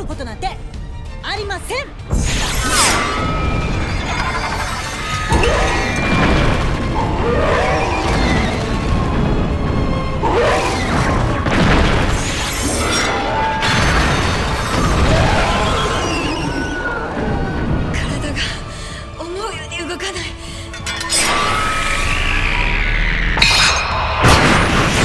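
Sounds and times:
background music: 0.0 - 25.0
monster roars: 21.4 - 23.4.

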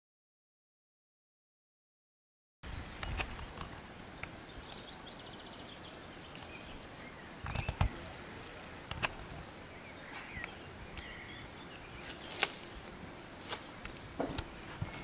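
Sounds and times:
outdoor background hiss: 2.6 - 15.0
faint bird chirps: 9.6 - 12.9
low thump with clicks: 14.2 - 14.5.

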